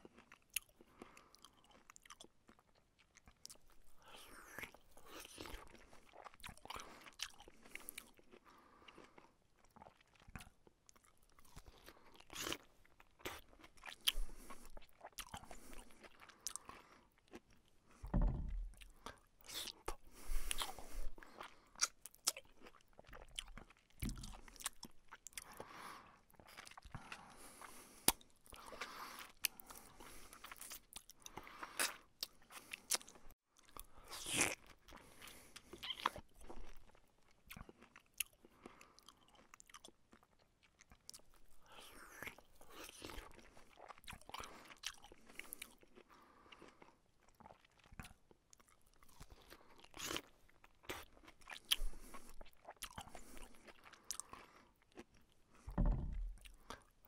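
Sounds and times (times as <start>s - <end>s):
chewing and crunching: 0.0s - 57.0s
dull low thuds: 18.1s - 18.8s, 55.7s - 56.4s.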